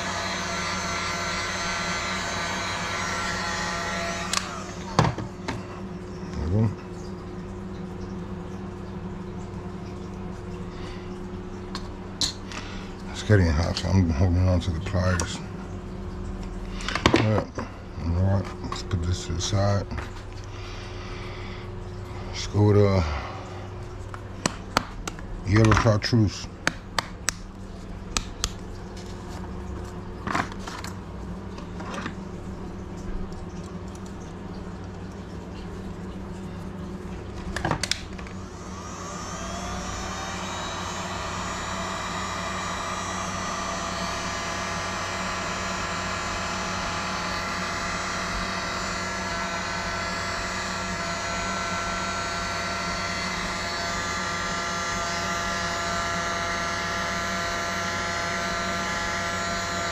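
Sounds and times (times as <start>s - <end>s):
heat gun whirring hum: 0.0s - 5.6s, 37.6s - 59.9s.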